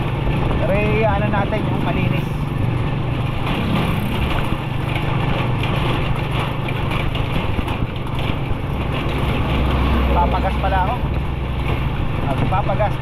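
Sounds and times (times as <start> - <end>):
road noise: 0.0 - 13.0
vehicle engine drone: 0.0 - 13.0.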